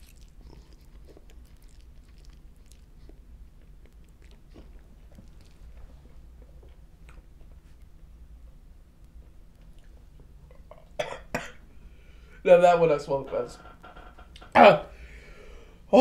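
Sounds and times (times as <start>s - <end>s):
person chewing noodles: 0.0s - 8.1s
low steady hum: 0.0s - 16.0s.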